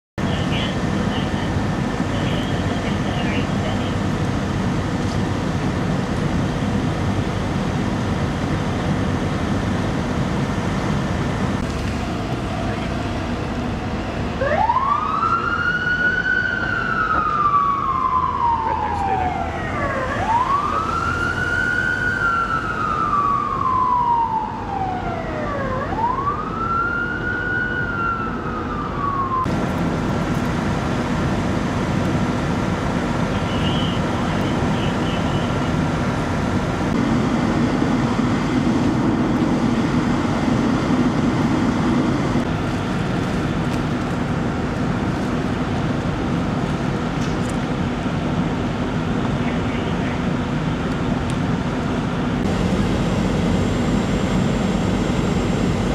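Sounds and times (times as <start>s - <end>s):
idling vehicle engines: 0.2s - 26.2s, 27.9s - 55.9s
ambulance siren wailing: 12.4s - 29.6s.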